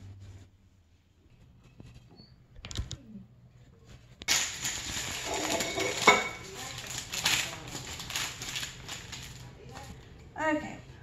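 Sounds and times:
paper towel crinkling: 0:03.9 - 0:10.1.

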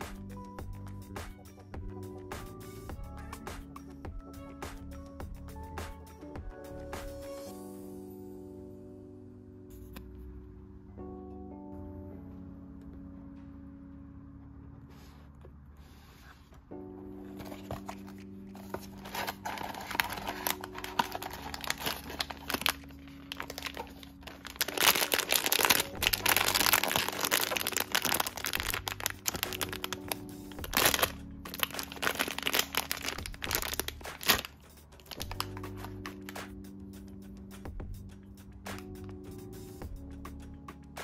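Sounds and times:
soft background music: 0:00.0 - 0:41.0
plastic bag crinkling and tearing: 0:17.3 - 0:36.4.

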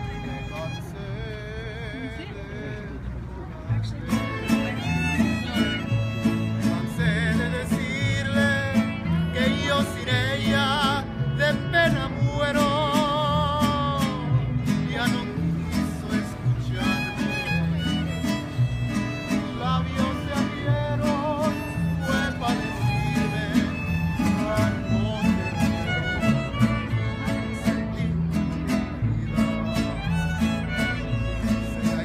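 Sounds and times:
bass guitar line: 0:03.7 - 0:32.0
strummed guitars: 0:03.7 - 0:32.0
violins playing melody: 0:04.0 - 0:12.8, 0:15.6 - 0:32.0.

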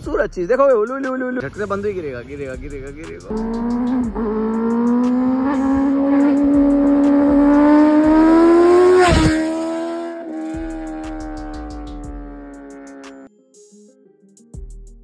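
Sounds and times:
music with steady beat: 0:02.6 - 0:09.6, 0:10.4 - 0:15.0
motorcycle engine accelerating: 0:03.3 - 0:13.2.

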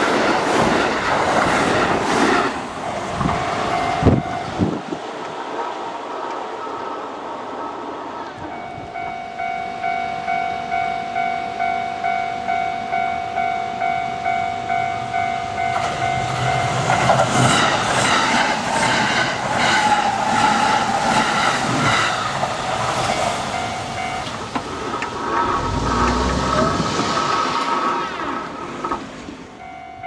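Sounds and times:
train wheels clacking over rail joints: 0:00.0 - 0:04.3, 0:15.7 - 0:29.6
level-crossing warning bell: 0:03.1 - 0:04.9, 0:08.4 - 0:18.5, 0:22.1 - 0:25.0, 0:29.5 - 0:30.0.

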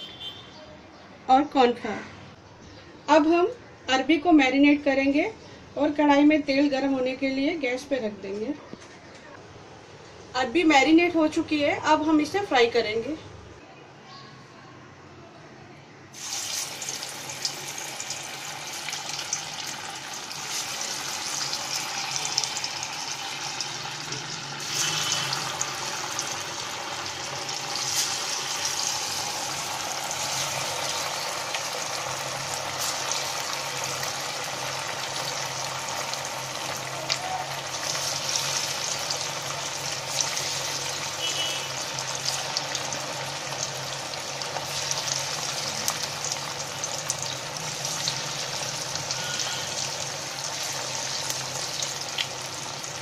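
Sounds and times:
food sizzling in hot oil: 0:16.1 - 0:53.0.

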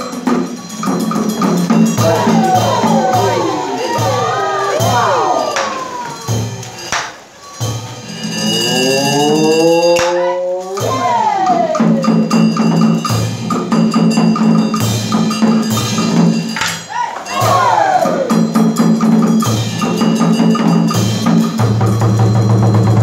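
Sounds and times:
sharp percussion strikes: 0:00.0 - 0:23.0
melody with bending notes: 0:00.5 - 0:17.7
low drone: 0:08.0 - 0:10.9.

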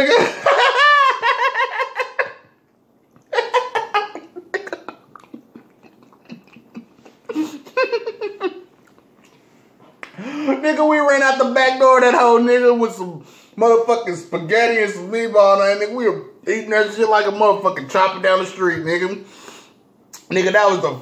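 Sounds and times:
man laughing: 0:00.0 - 0:02.5, 0:03.2 - 0:08.7.

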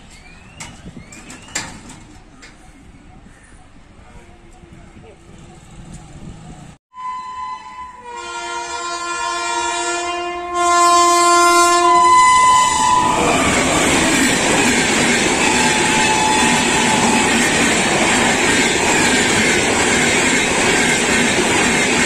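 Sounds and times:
train wheels on rails: 0:00.0 - 0:06.8, 0:11.6 - 0:22.0
locomotive horn blast: 0:06.9 - 0:14.3, 0:15.3 - 0:17.4.

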